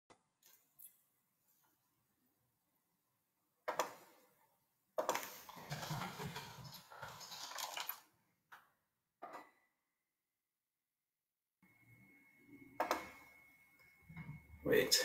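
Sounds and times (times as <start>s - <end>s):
clattering and rustling: 5.0s - 8.0s.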